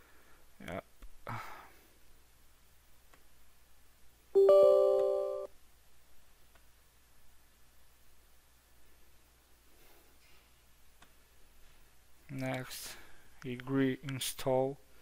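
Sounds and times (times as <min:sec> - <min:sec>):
bright multi-tone chime: 0:04.4 - 0:05.5.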